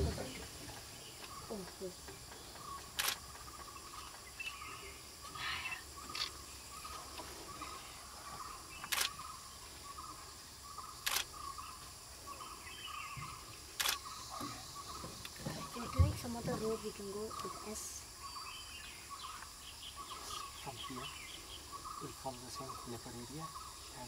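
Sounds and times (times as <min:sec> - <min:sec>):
faint pulsing chirp: 0:00.0 - 0:24.0
camera shutter clicks: 0:03.0 - 0:03.2, 0:08.8 - 0:09.2, 0:11.0 - 0:11.3, 0:13.8 - 0:14.1.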